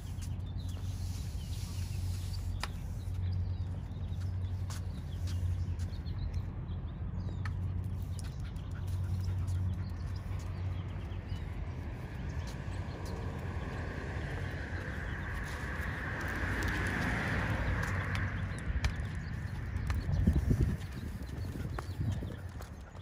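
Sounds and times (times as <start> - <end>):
footsteps: 2.4 - 6.0.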